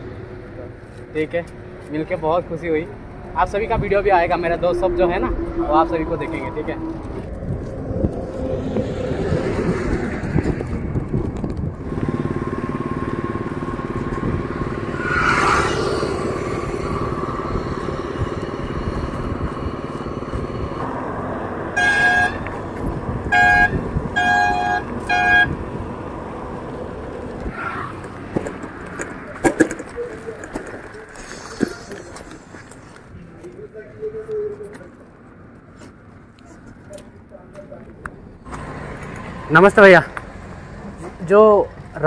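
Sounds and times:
traffic noise: 0.0s - 42.0s
wind: 0.0s - 42.0s
vehicle passing close: 2.4s - 32.5s
vehicle horn honks: 21.8s - 22.5s, 23.2s - 25.6s.

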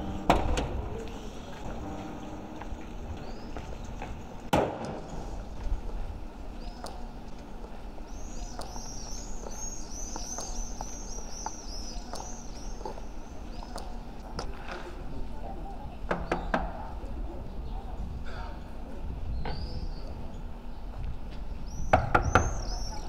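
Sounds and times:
high heels on stone street: 0.0s - 15.4s
birds chirping: 1.0s - 4.5s, 8.0s - 14.1s, 21.6s - 23.0s.

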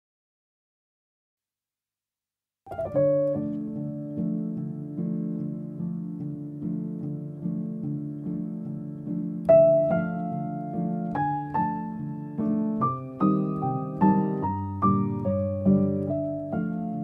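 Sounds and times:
slow piano music: 2.7s - 17.0s.

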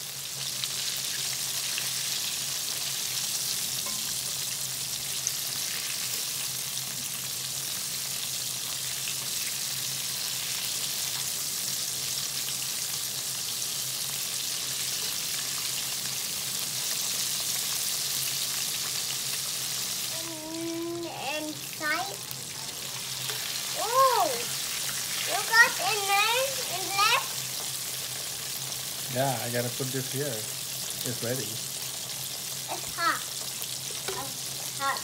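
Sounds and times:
chicken deep-frying in oil: 0.0s - 35.0s.

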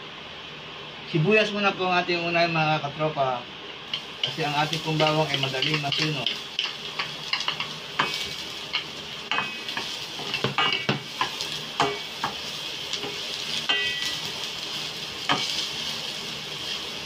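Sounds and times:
onion sizzling in oil: 3.8s - 17.0s
wooden spatula knocking pan: 9.3s - 12.4s.

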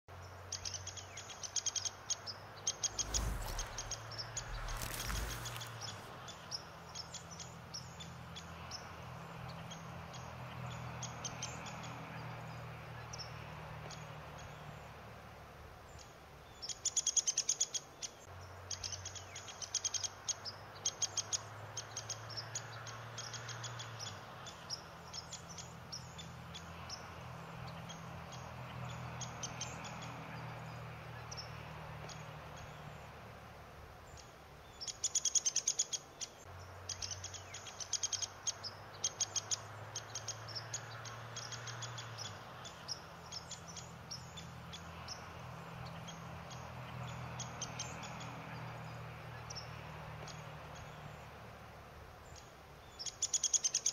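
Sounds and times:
birds chirping: 2.7s - 6.4s.

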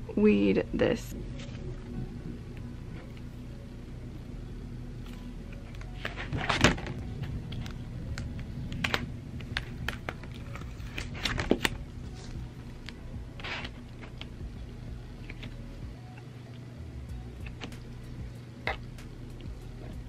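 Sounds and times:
hook scratching and crackling vinyl: 4.6s - 20.0s.

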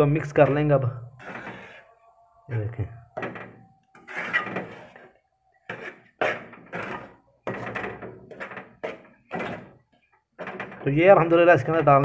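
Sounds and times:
metal spoon scraping a metal pan: 1.2s - 1.9s, 3.9s - 9.0s.

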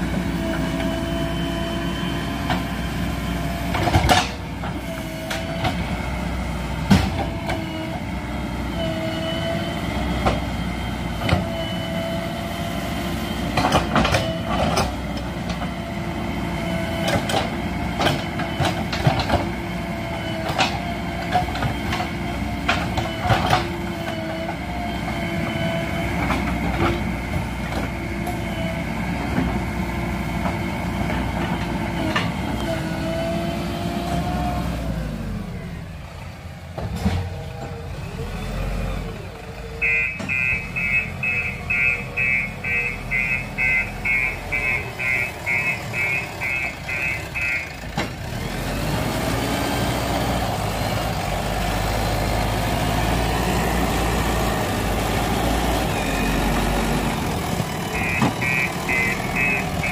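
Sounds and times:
diesel engine running: 0.0s - 59.9s
digger bucket clanks and knocks: 3.7s - 5.8s, 6.9s - 7.7s, 13.5s - 15.7s, 17.0s - 19.5s.

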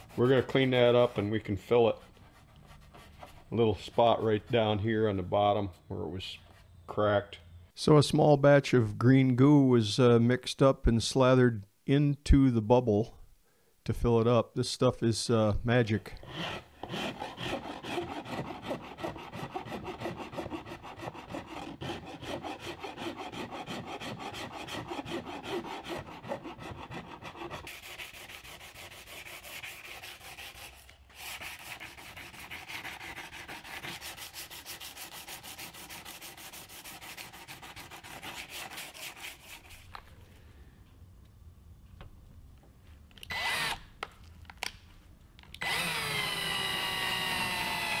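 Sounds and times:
hand sanding fiberglass: 0.0s - 4.9s, 16.3s - 40.0s.

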